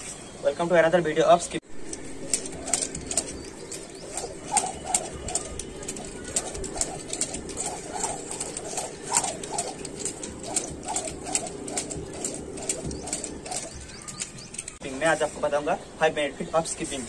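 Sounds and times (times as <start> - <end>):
skipping rope slapping concrete: 2.7 - 14.2.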